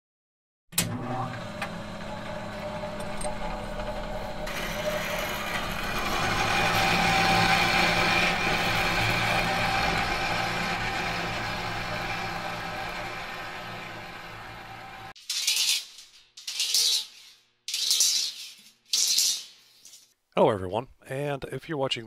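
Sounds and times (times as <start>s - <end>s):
machine humming: 0.8s - 15.2s.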